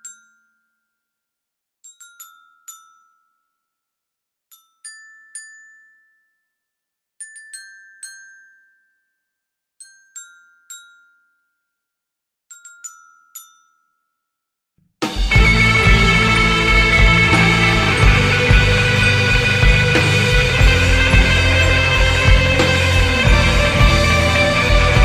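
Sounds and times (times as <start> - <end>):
full rock band playing: 15.1 - 25.0.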